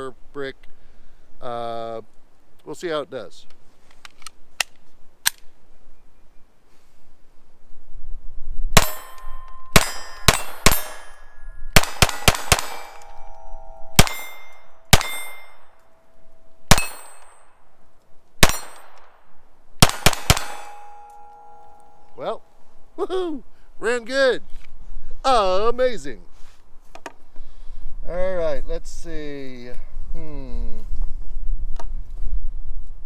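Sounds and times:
pistol shots: 8.8s - 11.2s, 11.8s - 15.7s, 16.7s - 17.5s, 18.4s - 19.2s, 19.8s - 21.6s
steel targets ringing: 8.8s - 17.6s, 18.4s - 19.0s, 19.8s - 22.5s.

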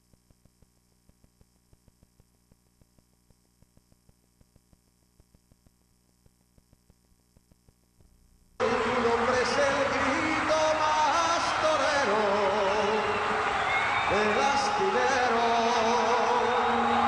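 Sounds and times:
small irregular clicks: 0.0s - 8.1s
faint electrical hum and static: 0.0s - 17.0s.

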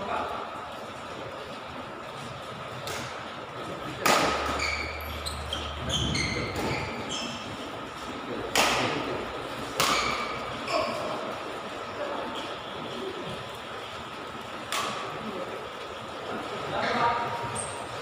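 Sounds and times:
racket hitting shuttlecock: 3.9s - 5.0s, 6.4s - 7.0s, 8.5s - 9.0s, 9.6s - 11.0s, 14.7s - 15.1s
shoes squeaking on court: 4.4s - 7.8s, 17.5s - 17.9s.

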